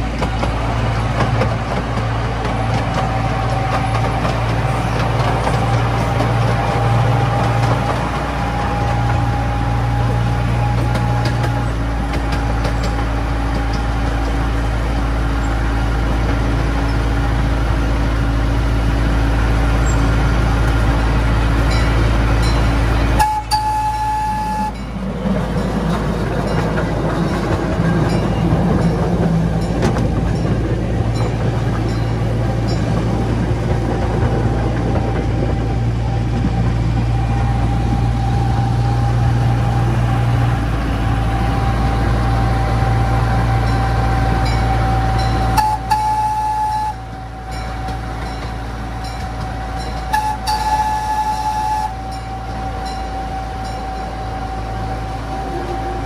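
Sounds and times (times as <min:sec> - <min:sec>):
train rumbling on track: 0:00.0 - 0:56.0.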